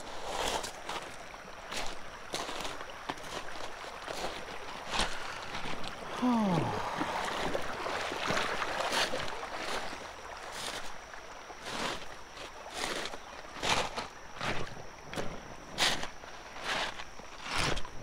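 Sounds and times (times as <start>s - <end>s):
footsteps on gravel: 0.0s - 6.0s
water rushing over gravel: 0.0s - 18.0s.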